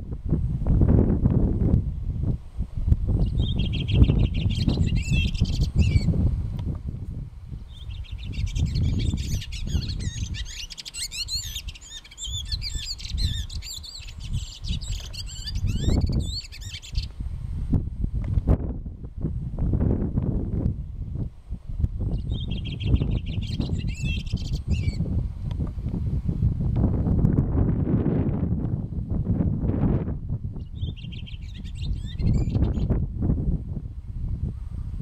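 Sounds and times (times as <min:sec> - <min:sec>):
wind buffeting microphone: 0:00.0 - 0:35.0
songbird warbling: 0:03.2 - 0:06.2, 0:07.6 - 0:17.2, 0:22.1 - 0:25.0, 0:30.6 - 0:33.0.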